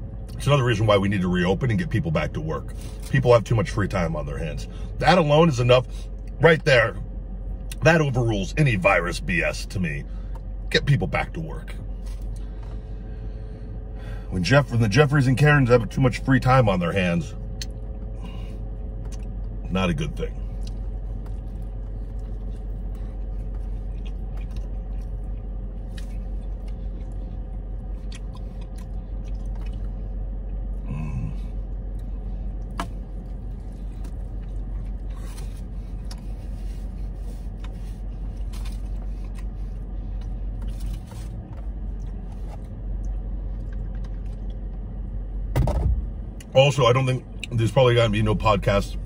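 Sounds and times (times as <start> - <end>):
car interior hum: 0.0 - 49.0
man chewing food: 11.9 - 13.1, 17.4 - 19.6, 20.4 - 44.9.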